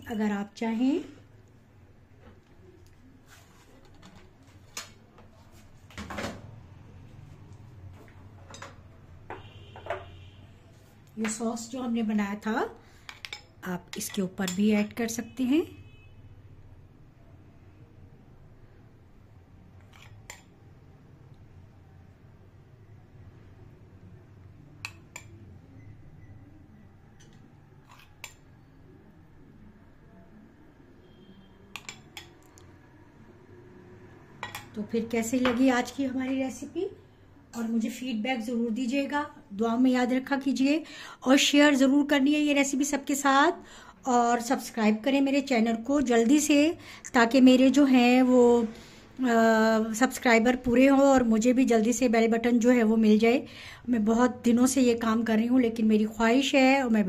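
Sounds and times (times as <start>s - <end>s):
metal spoon clinking on dishes: 13.0s - 14.9s, 31.7s - 32.4s, 34.4s - 34.8s.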